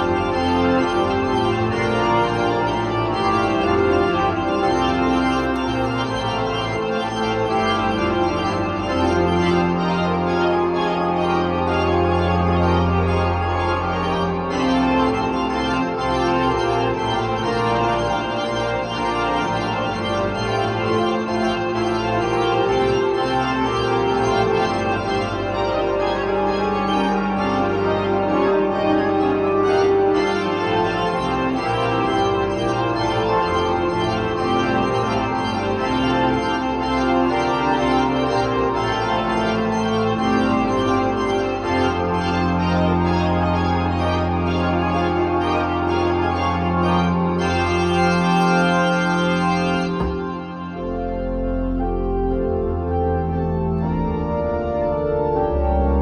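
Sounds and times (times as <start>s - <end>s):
electronic organ chords: 0.0s - 56.0s
deep bass note: 49.8s - 51.2s.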